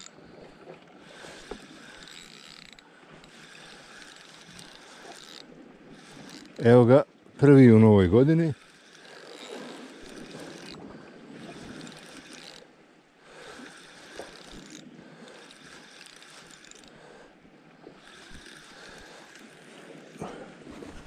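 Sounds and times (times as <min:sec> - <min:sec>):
fishing reel winding: 0:00.0 - 0:00.2, 0:01.0 - 0:06.8, 0:07.7 - 0:20.0.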